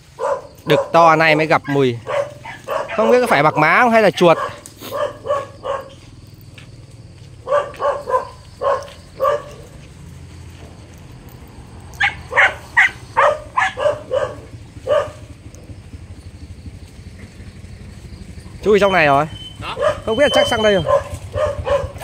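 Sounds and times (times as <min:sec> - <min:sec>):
dog barking quickly: 0:00.1 - 0:06.0, 0:07.4 - 0:09.8, 0:12.0 - 0:15.3, 0:19.2 - 0:22.0.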